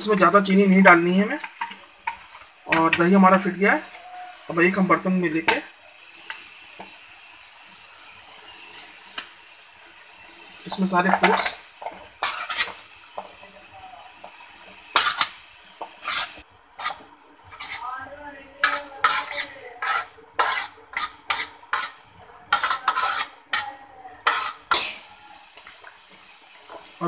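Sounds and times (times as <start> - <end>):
cutlery clinking and scraping dishes: 10.7 - 13.4, 14.9 - 17.8, 18.6 - 26.9.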